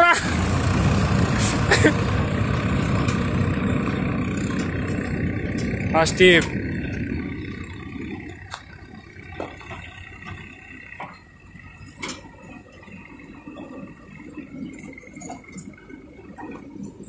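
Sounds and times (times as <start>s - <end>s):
distant tractor engines droning: 0.0s - 17.0s.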